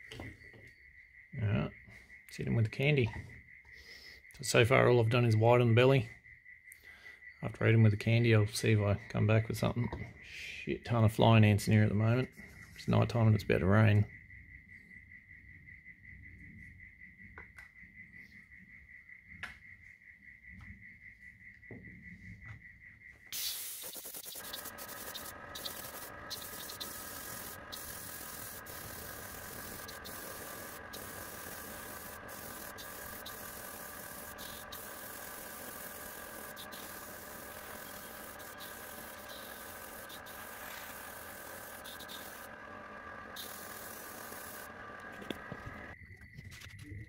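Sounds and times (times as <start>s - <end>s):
airbrush spraying hiss: 23.3s - 42.5s, 43.1s - 45.4s
compressor humming: 23.3s - 46.0s.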